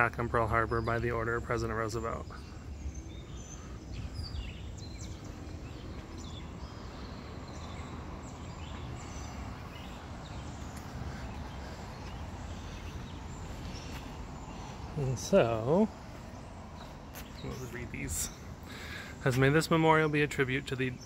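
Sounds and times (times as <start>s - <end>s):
steady low rumble: 0.0s - 18.8s
birds chirping: 0.0s - 21.0s.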